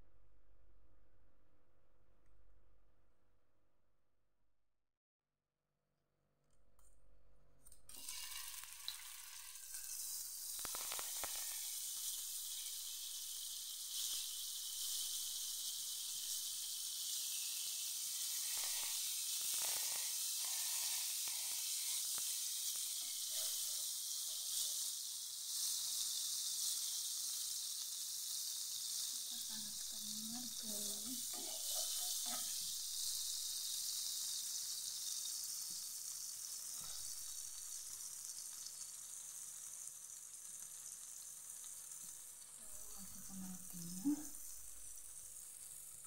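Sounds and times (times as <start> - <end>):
margarine sizzling in a frying pan: 7.9 - 46.0
metal spoon scraping a pan: 31.0 - 33.3.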